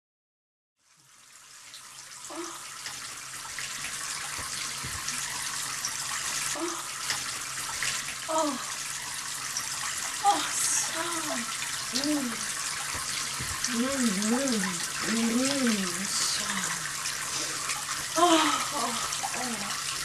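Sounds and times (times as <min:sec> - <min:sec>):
water running in a bathtub: 0:00.8 - 0:20.0
woman moaning: 0:02.3 - 0:02.6, 0:06.6 - 0:06.9, 0:08.3 - 0:08.7, 0:10.2 - 0:12.5, 0:13.7 - 0:16.8, 0:18.2 - 0:19.8.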